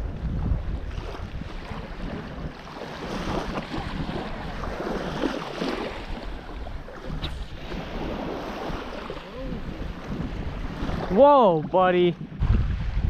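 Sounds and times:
wind buffeting microphone: 0.0s - 13.0s
surf breaking on beach: 1.2s - 13.0s.

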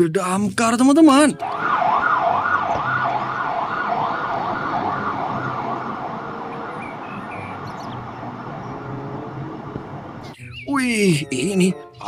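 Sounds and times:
fire engine siren wailing: 1.4s - 10.2s
fire truck engine running: 1.4s - 10.3s.

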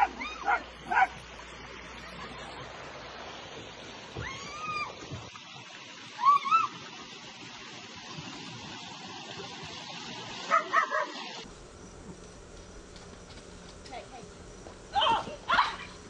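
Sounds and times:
water rushing down a slide: 1.2s - 11.5s.

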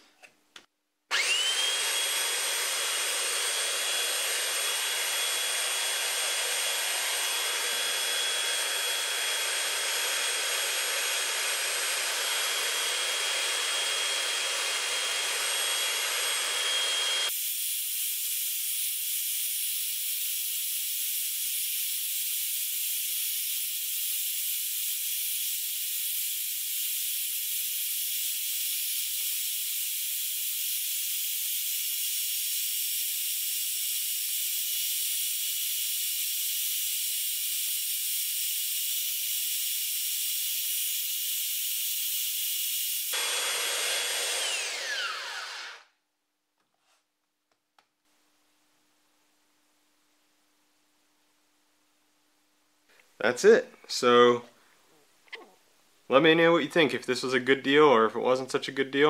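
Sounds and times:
belt sander running: 1.1s - 18.9s, 42.3s - 45.9s.

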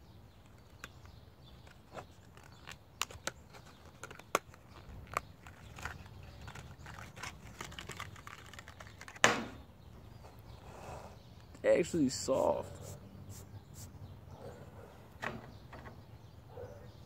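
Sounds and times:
stiff plastic packaging crinkling: 0.5s - 9.2s.

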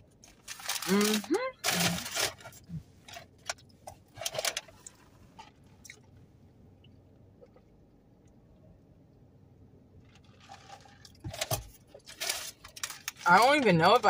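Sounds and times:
rustling: 0.1s - 6.0s, 10.0s - 14.0s.

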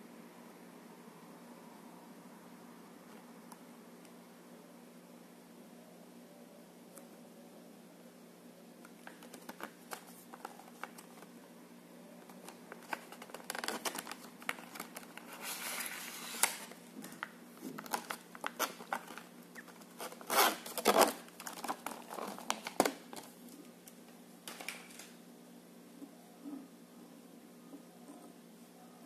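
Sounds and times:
plastic packaging crinkling: 9.0s - 11.3s, 12.2s - 23.4s.

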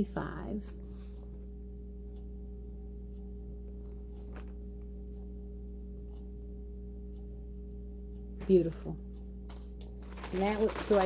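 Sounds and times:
steady low hum: 0.0s - 11.0s
yarn clicks and rustles: 3.8s - 4.6s, 9.5s - 11.0s.

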